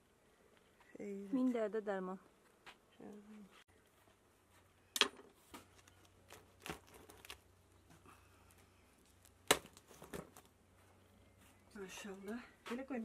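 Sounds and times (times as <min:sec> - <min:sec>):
dry bread crackles and knocks: 0:05.0 - 0:10.6.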